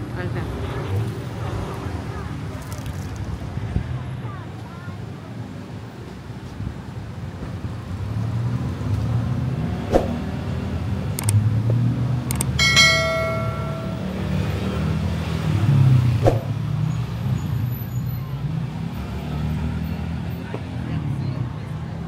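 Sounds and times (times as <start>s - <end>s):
cars passing: 0.0s - 22.0s
metallic bell-like ring: 12.6s - 14.7s.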